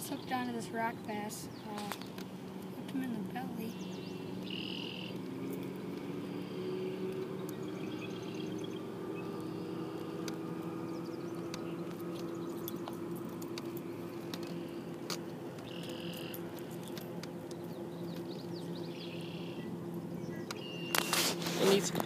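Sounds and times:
low motor hum: 0.0s - 22.0s
short chirping calls: 1.4s - 13.0s, 15.6s - 21.2s.

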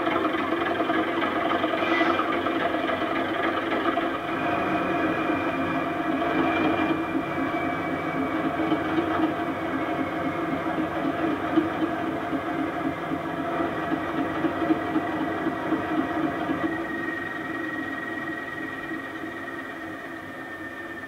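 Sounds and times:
model train diesel engine sound: 0.0s - 21.0s
thin high squeal: 1.7s - 2.4s.

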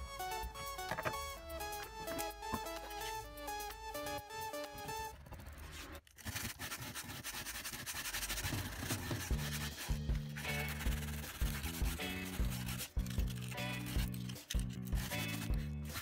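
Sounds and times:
scratchy rubbing on a surface: 5.6s - 16.0s.

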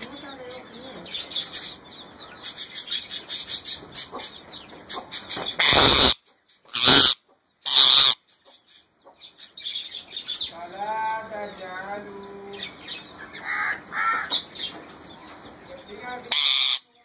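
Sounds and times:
parakeet chirping: 2.4s - 10.5s, 16.3s - 16.8s
parakeet screeching: 5.6s - 8.2s, 16.3s - 16.9s.

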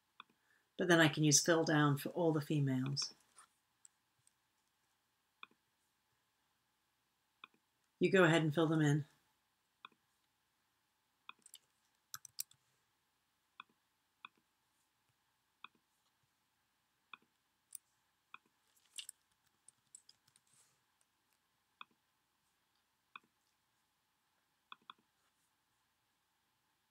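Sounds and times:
mouse and keyboard clicks: 11.3s - 12.6s.

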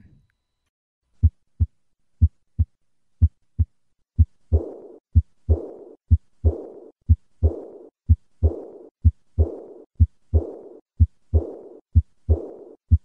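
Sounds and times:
heartbeat lub-dub: 1.2s - 13.0s.

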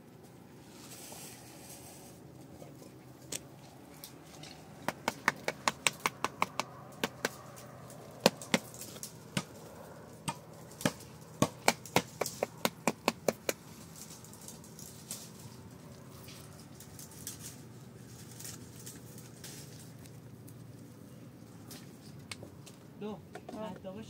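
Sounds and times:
sharp knocks: 4.8s - 7.4s, 8.2s - 9.6s.

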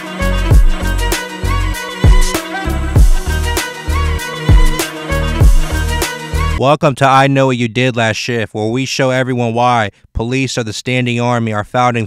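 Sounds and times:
sustained bass notes: 0.2s - 6.6s
kick drums dropping in pitch: 0.5s - 0.8s, 2.0s - 2.4s, 3.0s - 3.3s, 4.5s - 4.8s, 5.4s - 5.8s.

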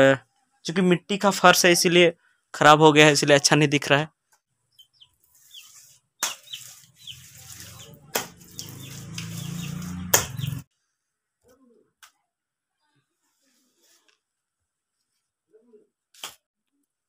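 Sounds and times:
small birds chirping: 4.4s - 10.7s.

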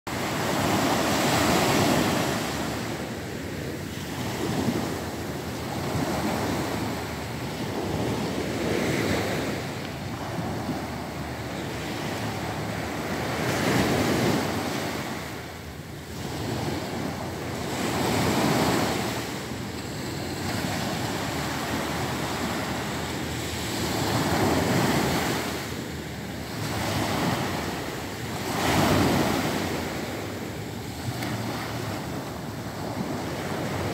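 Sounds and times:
waves breaking on beach: 0.1s - 33.9s.

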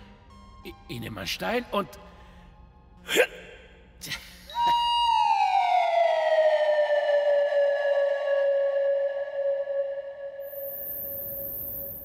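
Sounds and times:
whistle tone gliding down: 5.0s - 12.0s.

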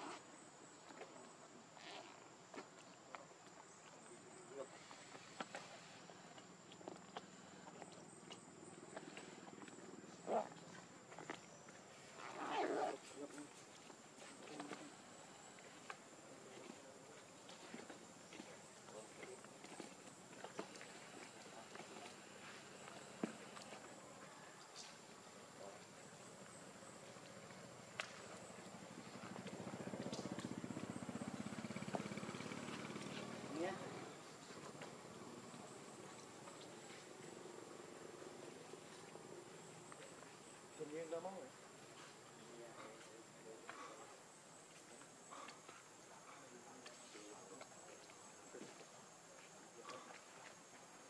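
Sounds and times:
small engine puttering: 29.2s - 34.0s.

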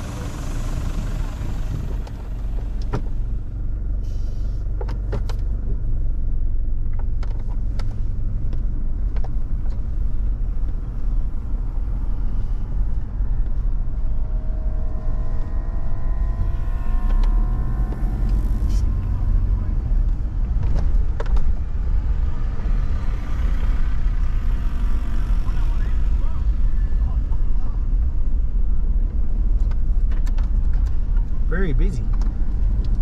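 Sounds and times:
vehicle engine and tyres rumbling: 0.0s - 33.0s
faint steady hum: 8.0s - 22.7s.

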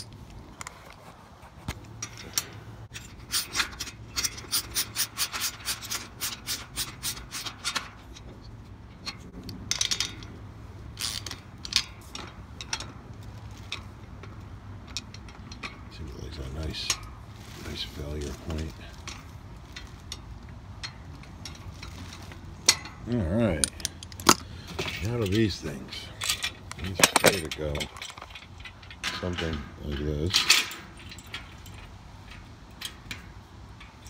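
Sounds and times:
metal rubbing: 0.0s - 10.1s.

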